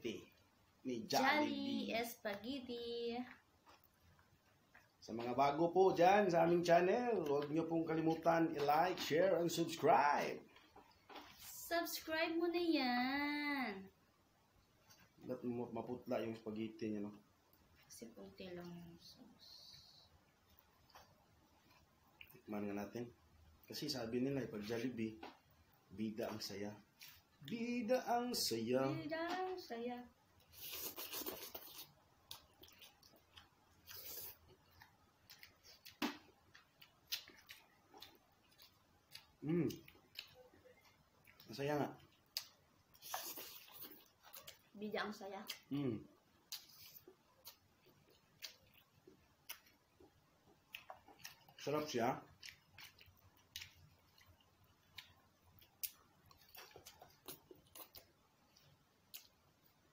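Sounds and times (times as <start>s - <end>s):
chewing and slurping: 30.5s - 44.7s
slurping and chewing noodles: 42.0s - 44.6s.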